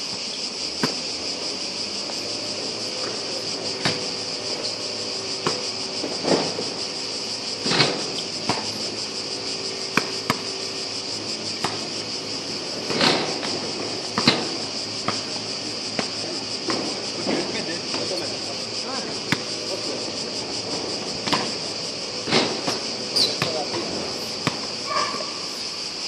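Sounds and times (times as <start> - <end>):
cicadas buzzing: 0.0 - 26.0
basketball bouncing on hard court: 19.2 - 19.5, 23.2 - 23.8, 24.4 - 24.7.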